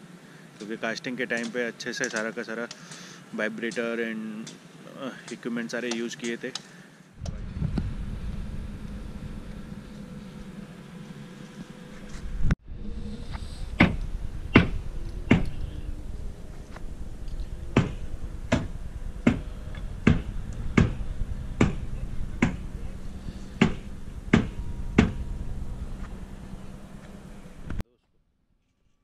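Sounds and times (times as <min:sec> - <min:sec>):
steady low rumble: 0:07.2 - 0:27.8.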